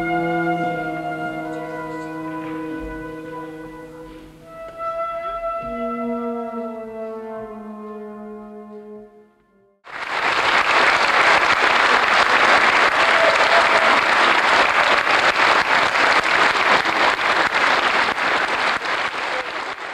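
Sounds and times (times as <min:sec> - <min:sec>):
audience applause: 0:09.9 - 0:19.9.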